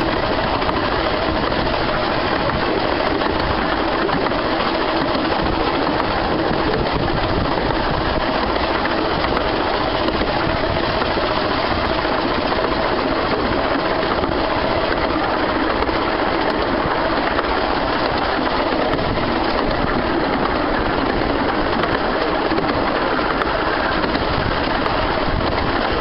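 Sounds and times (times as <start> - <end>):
carriage wheels rolling on rails: 0.0 - 26.0
steam locomotive working: 0.0 - 26.0.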